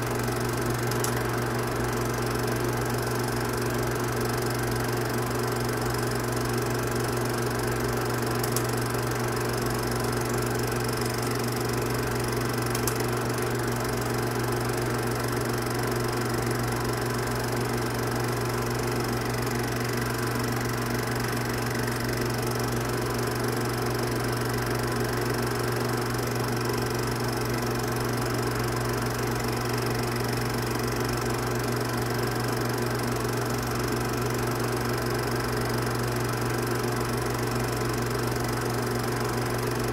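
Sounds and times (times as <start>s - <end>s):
film projector running: 0.0s - 39.9s.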